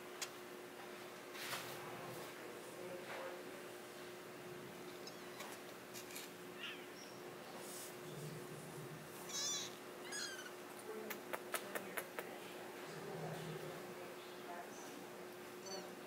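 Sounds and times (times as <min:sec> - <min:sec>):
kittens mewing: 0:08.4 - 0:10.6.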